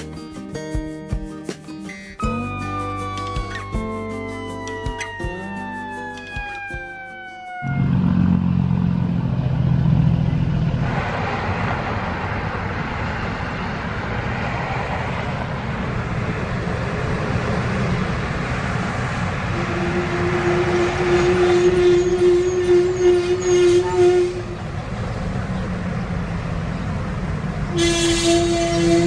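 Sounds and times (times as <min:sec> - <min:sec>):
tyre and road noise: 0:01.7 - 0:29.0
diesel engine rumble: 0:07.0 - 0:29.0.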